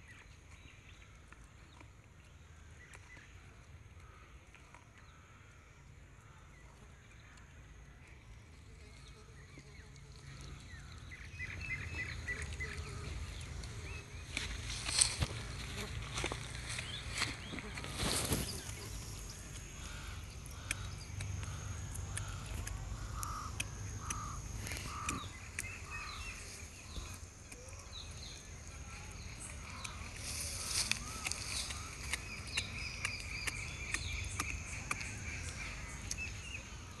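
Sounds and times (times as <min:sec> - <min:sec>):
puppy chewing and crunching: 0:18.9 - 0:28.3, 0:29.6 - 0:36.8.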